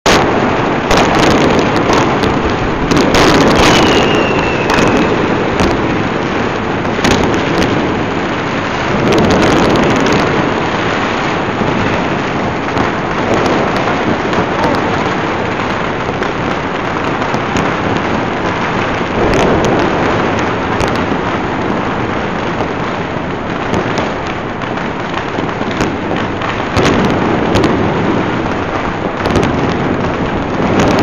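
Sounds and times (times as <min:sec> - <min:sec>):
firework bangs: 0:00.0 - 0:31.0
fireworks crackling: 0:00.0 - 0:31.0
high firework whistle: 0:02.9 - 0:06.1.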